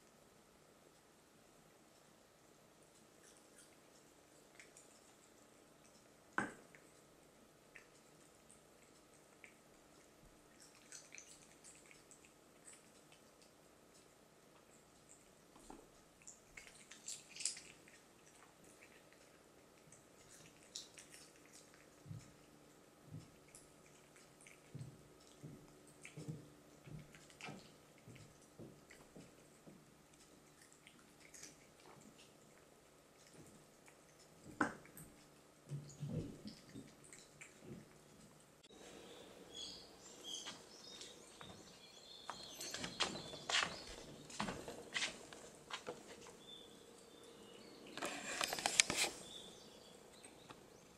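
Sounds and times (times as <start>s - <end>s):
cat chewing bones: 2.9s - 39.4s
small birds chirping: 3.0s - 50.9s.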